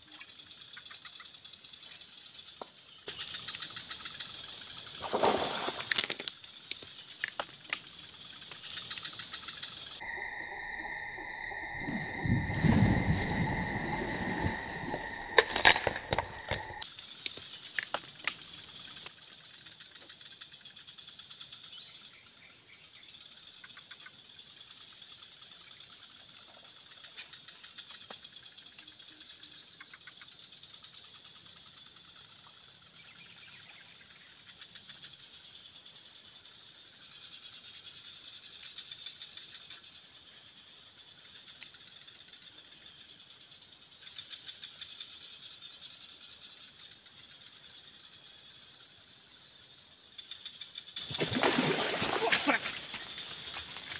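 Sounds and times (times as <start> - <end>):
insects buzzing: 0.0 - 53.9
fish splashing at surface: 5.0 - 6.3, 51.1 - 53.0.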